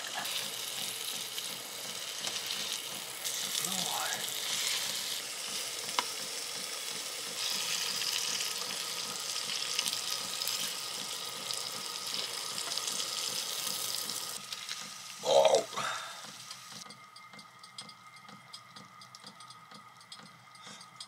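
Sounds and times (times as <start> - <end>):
fish sizzling in butter: 0.0 - 16.7.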